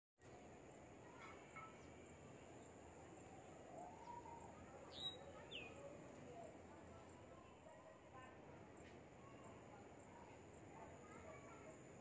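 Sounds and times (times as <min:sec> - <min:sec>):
faint outdoor hiss: 0:00.2 - 0:12.0
distant bird chirps: 0:03.7 - 0:06.5.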